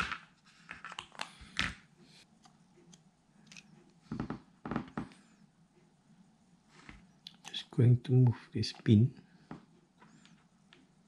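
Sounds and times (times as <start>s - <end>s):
plastic lens parts clicking: 2.4s - 3.7s.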